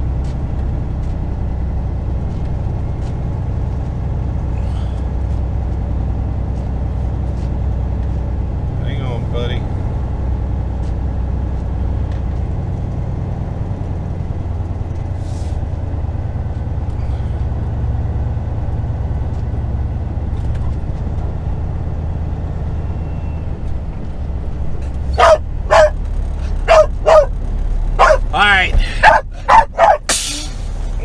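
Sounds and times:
diesel truck engine rumbling: 0.0 - 31.0
dog barking: 25.1 - 26.0, 26.6 - 27.4, 28.0 - 28.3, 29.0 - 30.1.

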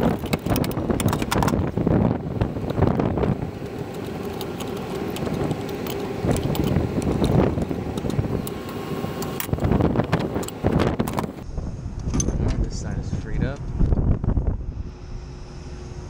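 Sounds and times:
wind rumbling on microphone: 0.0 - 16.0
metallic clicks and clinks: 3.9 - 7.4.

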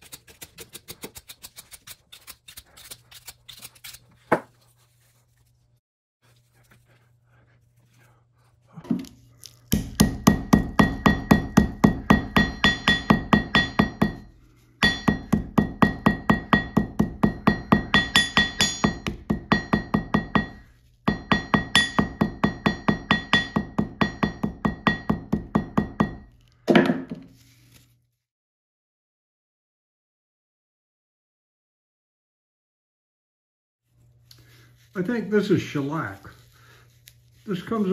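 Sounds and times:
hammer striking steel anvil: 9.7 - 27.1.

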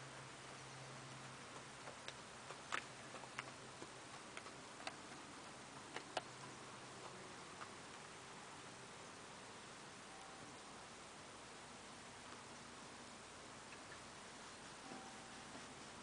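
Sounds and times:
horse hooves on frosty ground: 0.0 - 8.9, 13.7 - 16.0.

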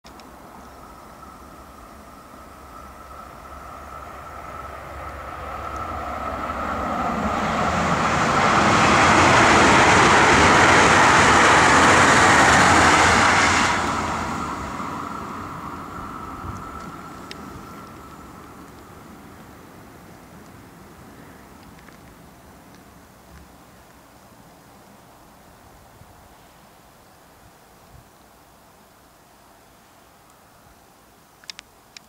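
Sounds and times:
rail hiss: 0.1 - 32.0
electric train passing: 0.2 - 25.5.

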